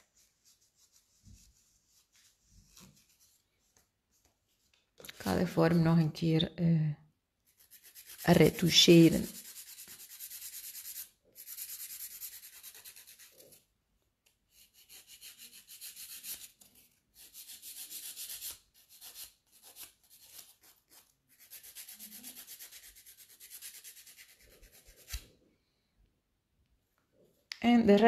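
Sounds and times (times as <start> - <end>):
nail file scraping: 7.5 - 13.6, 14.5 - 25.3.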